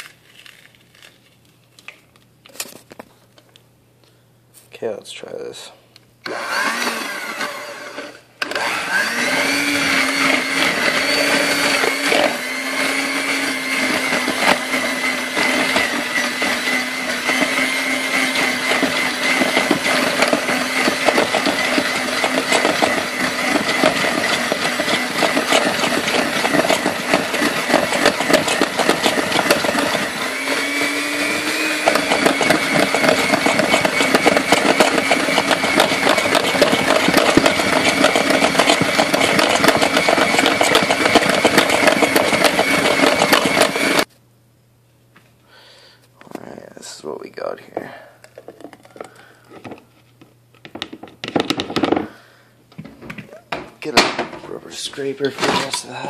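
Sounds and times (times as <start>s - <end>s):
electric hand mixer whining: 6.2s - 44.1s.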